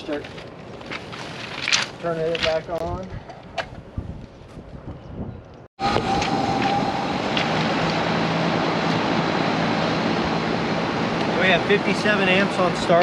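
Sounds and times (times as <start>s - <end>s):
condenser fan air rush: 5.8s - 13.0s.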